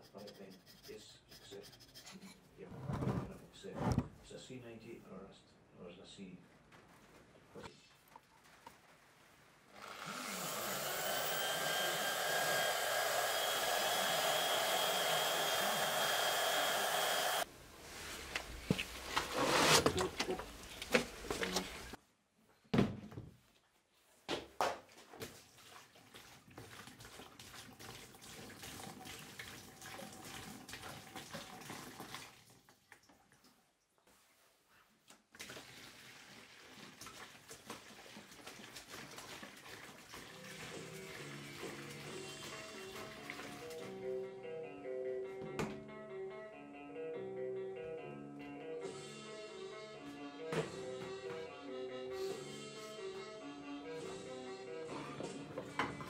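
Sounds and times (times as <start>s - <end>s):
power tool motor whining: 9.8s - 17.5s
liquid pouring into plastic tub: 25.2s - 33.4s, 35.3s - 42.2s.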